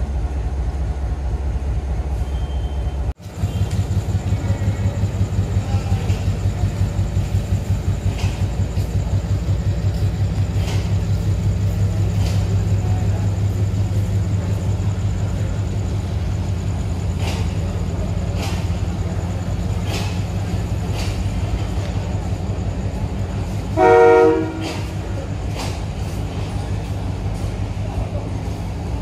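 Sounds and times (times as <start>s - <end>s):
diesel locomotive engine humming: 0.0s - 29.0s.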